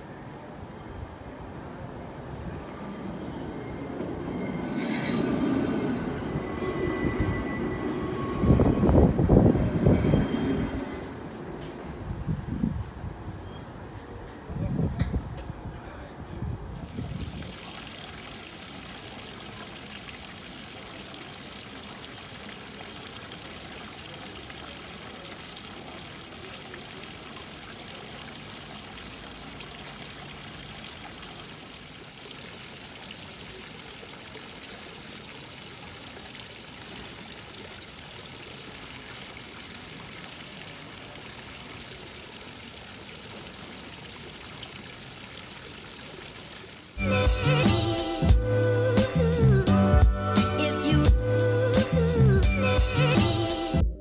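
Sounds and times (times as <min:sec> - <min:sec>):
fountain water splashing: 0:16.7 - 0:49.8.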